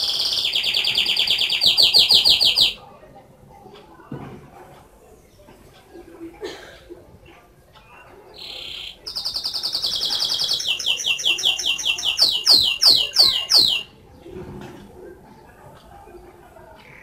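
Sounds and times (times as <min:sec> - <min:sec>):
canary singing: 0:00.0 - 0:02.9, 0:07.8 - 0:14.1.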